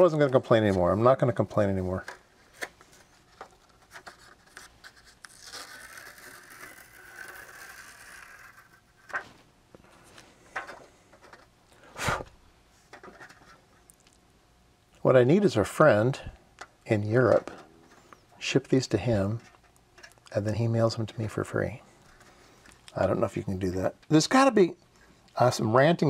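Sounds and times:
plastic film peeling rustle: 0:01.9 - 0:09.5.

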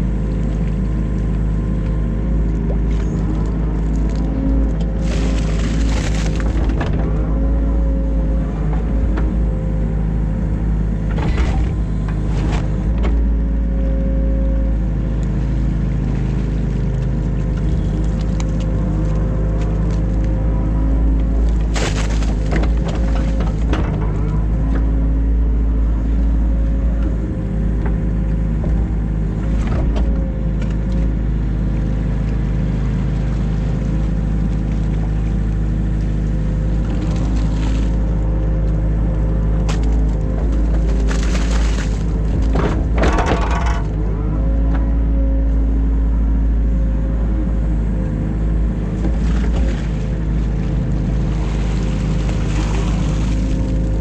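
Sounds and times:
excavator diesel engine running: 0:00.0 - 0:54.0
bucket scraping and clattering: 0:05.0 - 0:07.2, 0:21.7 - 0:24.3, 0:39.7 - 0:44.1.

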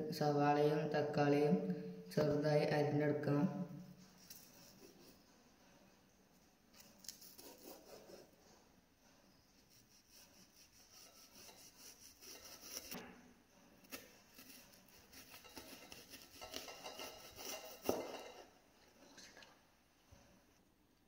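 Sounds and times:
knife slicing onion: 0:04.0 - 0:05.2, 0:06.7 - 0:08.4, 0:09.5 - 0:13.2, 0:13.8 - 0:18.5.

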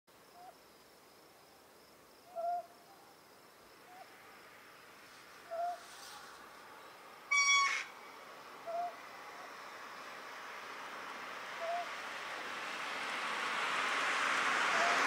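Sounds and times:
higher owl call: 0:02.3 - 0:03.1, 0:05.4 - 0:06.4, 0:07.3 - 0:08.0, 0:08.6 - 0:09.5, 0:11.6 - 0:12.0
owl hooting: 0:02.3 - 0:03.1, 0:05.4 - 0:06.2, 0:07.3 - 0:08.0, 0:08.6 - 0:09.0, 0:11.6 - 0:11.9.

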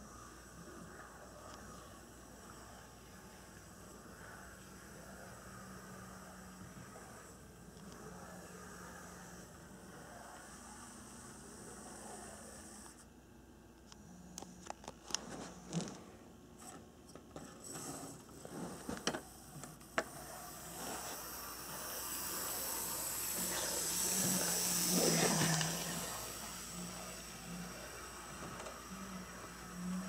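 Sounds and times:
model train motor whirring: 0:17.4 - 0:30.0.

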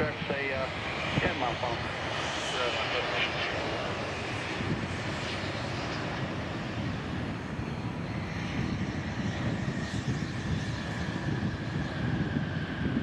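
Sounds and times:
jet engines rumbling: 0:00.0 - 0:13.0.

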